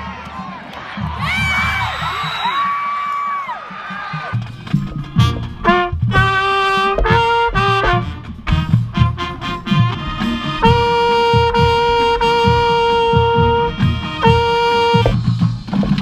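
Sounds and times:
marching band playing: 0:00.0 - 0:16.0
low drum beat: 0:04.2 - 0:16.0
trumpet notes: 0:05.0 - 0:15.3.

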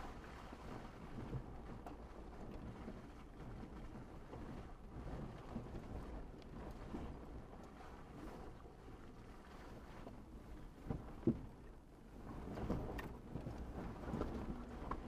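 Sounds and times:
faint knocks and rattles: 0:10.8 - 0:11.7.

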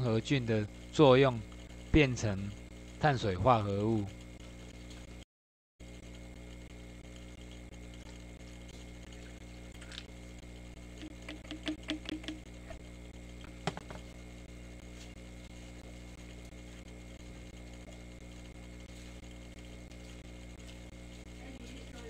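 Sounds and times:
steady low hum: 0:00.0 - 0:05.2, 0:05.8 - 0:22.0
plastic clicks and taps on steel: 0:11.0 - 0:12.4.

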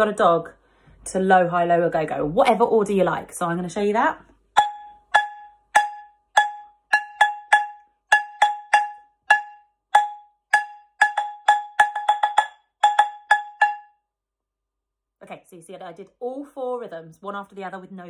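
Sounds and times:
wooden spatula drumming on metal pan: 0:04.6 - 0:13.8.

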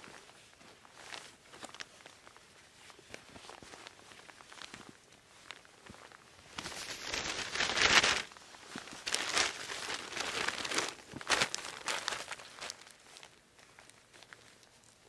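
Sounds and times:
foil tarp crinkling: 0:06.5 - 0:14.7.

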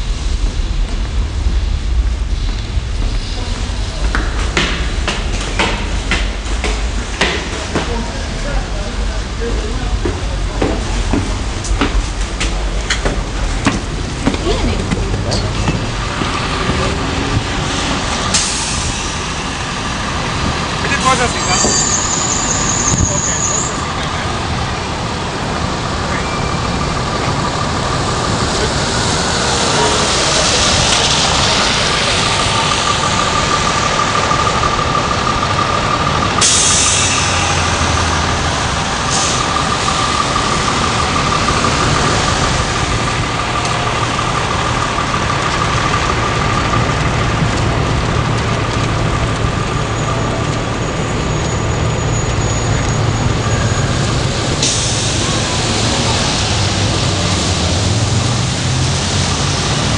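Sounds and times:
subway train rumble and whine: 0:00.0 - 0:59.9
hissing air bursts: 0:17.7 - 0:19.5.

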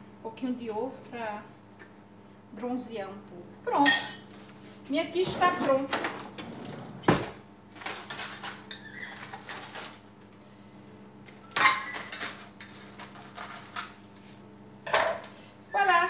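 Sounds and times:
dishes clattering on a counter: 0:03.8 - 0:04.3, 0:11.5 - 0:12.4, 0:14.8 - 0:15.4.

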